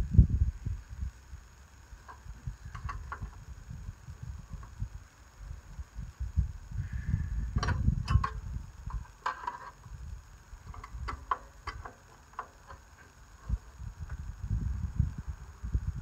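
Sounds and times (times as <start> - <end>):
low rumble: 0.0 - 9.2, 13.2 - 16.0.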